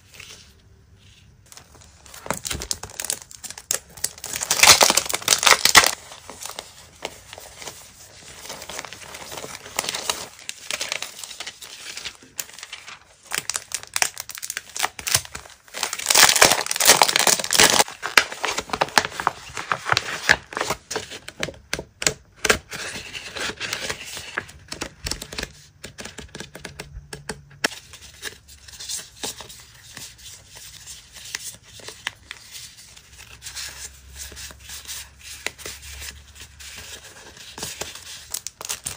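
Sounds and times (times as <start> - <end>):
paper stickers rustling: 0.1 - 21.2
plastic packaging crinkling and tearing: 1.5 - 21.0, 37.2 - 38.9.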